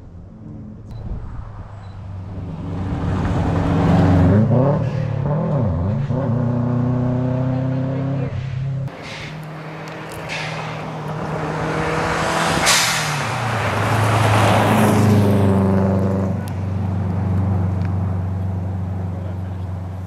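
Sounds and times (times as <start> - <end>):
rally car engine passing: 0.0 - 20.0
short sharp crack: 8.9 - 10.9, 12.6 - 13.4.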